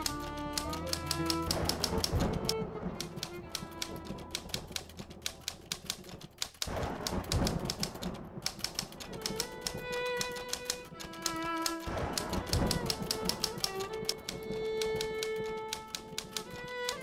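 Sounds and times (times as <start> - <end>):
background music: 0.0 - 17.0
typewriter keystroke clicks: 0.0 - 17.0.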